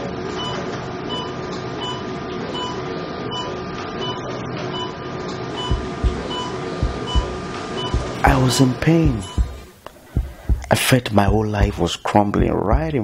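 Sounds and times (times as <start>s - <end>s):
patient monitor short beeps: 5.6s - 8.1s
steady background hiss: 5.6s - 12.7s.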